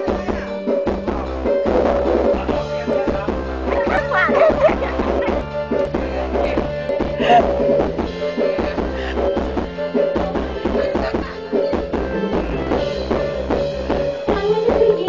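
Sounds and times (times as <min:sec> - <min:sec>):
dance music with drum beat: 0:00.0 - 0:15.0.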